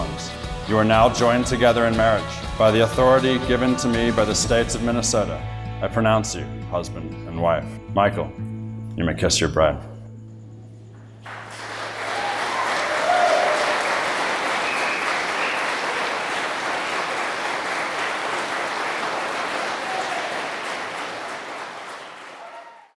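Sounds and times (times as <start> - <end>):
guests applauding: 11.2 - 22.9.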